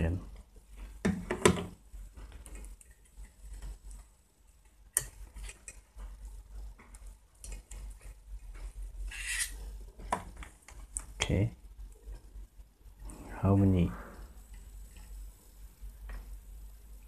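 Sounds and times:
test probes clicking and scraping: 0:09.1 - 0:09.6.

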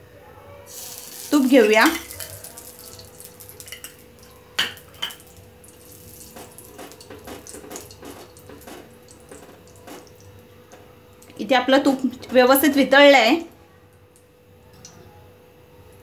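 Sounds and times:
ghee crackling in pan: 0:00.7 - 0:10.5.

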